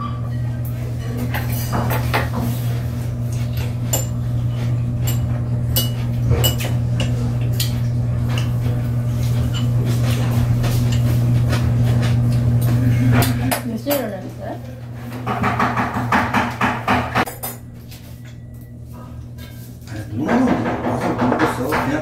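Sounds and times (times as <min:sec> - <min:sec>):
tableware clinking: 0:03.4 - 0:08.5, 0:17.2 - 0:18.7.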